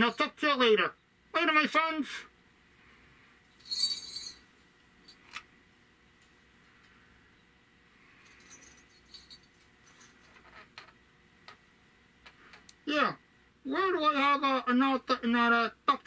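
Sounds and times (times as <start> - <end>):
metallic jingle: 3.6 - 4.5, 8.3 - 10.2
light clicks and rattles: 8.2 - 12.8.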